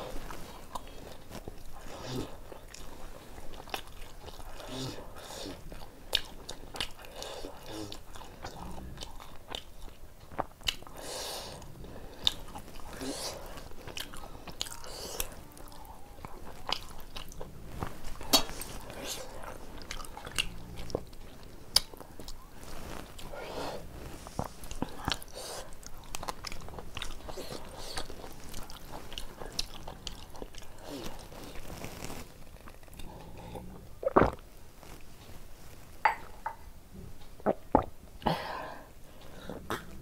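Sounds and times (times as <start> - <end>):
person chewing: 0.1 - 35.0.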